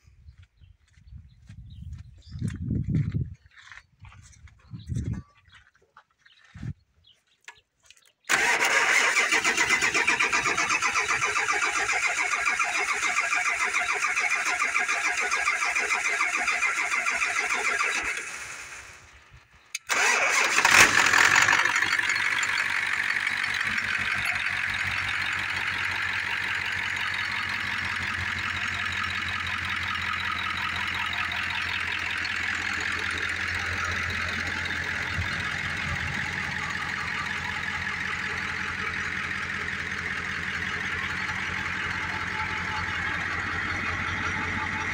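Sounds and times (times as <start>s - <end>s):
engine starter cranking: 8.3s - 19.0s, 19.8s - 44.9s
truck engine idling: 8.3s - 44.9s.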